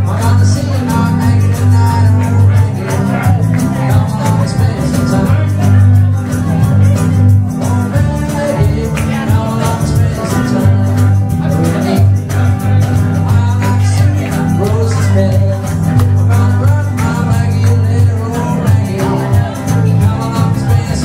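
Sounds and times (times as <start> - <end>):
audience clapping along: 0.0 - 21.0
live blues band playing: 0.0 - 21.0
person singing: 0.0 - 21.0.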